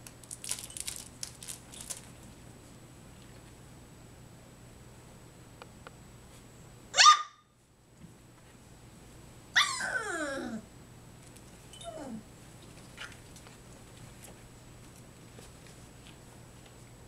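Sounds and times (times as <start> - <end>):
faint puppy whimper: 9.6 - 10.7, 11.8 - 12.3
puppy whining: 9.6 - 10.7, 11.7 - 12.3.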